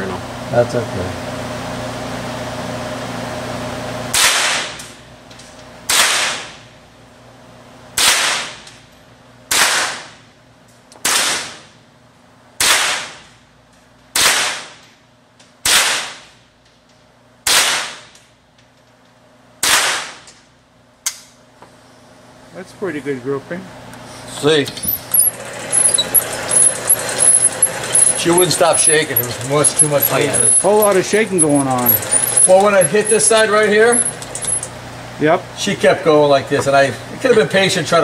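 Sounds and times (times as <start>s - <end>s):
rifle shots echoing indoors: 9.5s - 10.0s, 11.0s - 11.6s, 12.6s - 13.1s, 14.2s - 14.7s, 15.6s - 16.2s, 17.4s - 18.1s, 19.6s - 20.3s.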